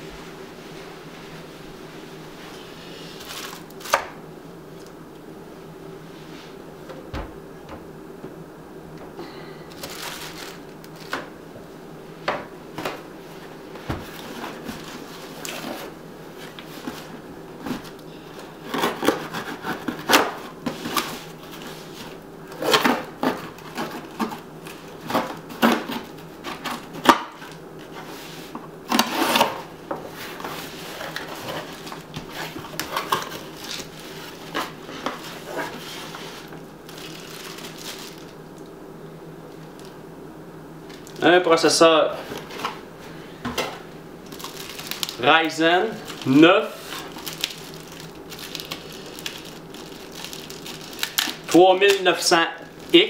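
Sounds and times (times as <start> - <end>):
low steady hum: 0.0 - 53.0
packing rustling: 3.2 - 4.0, 9.7 - 11.3, 30.2 - 38.4, 44.2 - 45.2, 46.0 - 52.0.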